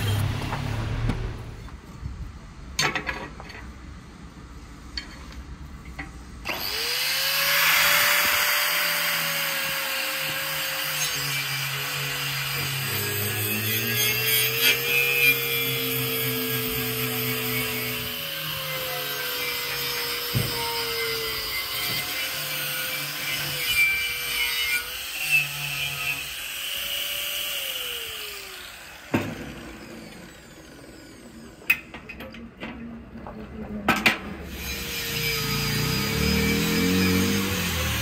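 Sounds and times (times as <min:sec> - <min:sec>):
power tool motor running: 0:06.5 - 0:13.1, 0:34.5 - 0:38.0.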